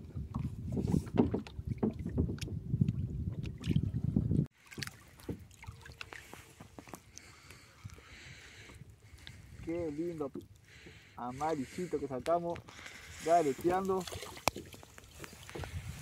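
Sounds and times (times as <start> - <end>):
wind rumbling on microphone: 0.0 - 4.5, 11.4 - 16.0
water lapping: 0.0 - 16.0
water splashing against kayak hull: 0.0 - 16.0.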